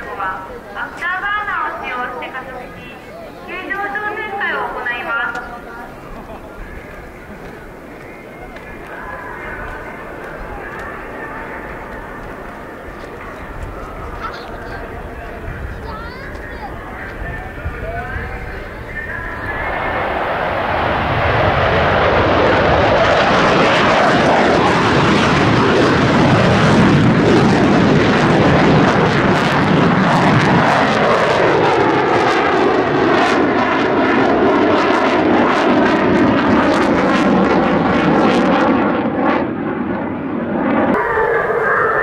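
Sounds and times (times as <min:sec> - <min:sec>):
jet engine roar: 0:00.0 - 0:42.0.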